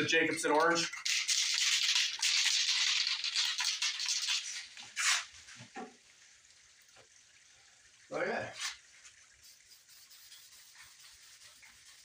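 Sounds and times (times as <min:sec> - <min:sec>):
aerosol can shaken and sprayed: 0:01.0 - 0:05.3, 0:09.4 - 0:12.0.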